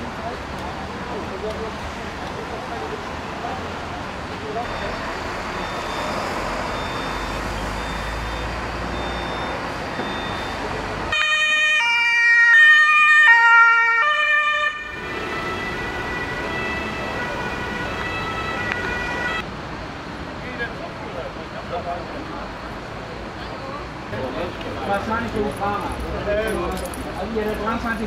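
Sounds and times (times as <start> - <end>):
road traffic noise: 0.0 - 28.0
two-tone emergency siren: 5.6 - 19.4.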